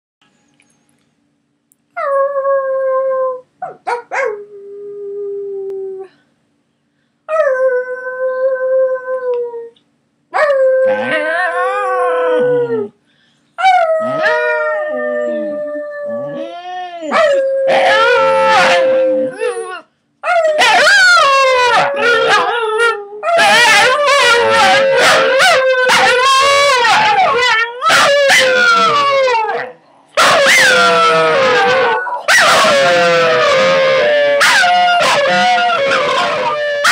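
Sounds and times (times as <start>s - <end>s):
dogs howling: 10.4s - 12.9s, 13.6s - 36.9s.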